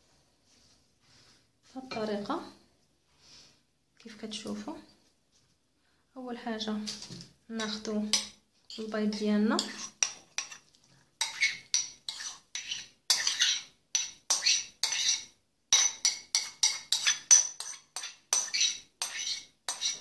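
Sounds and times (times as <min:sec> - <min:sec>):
spoon clinking against ceramic bowl: 0:07.6 - 0:10.6, 0:11.2 - 0:20.0.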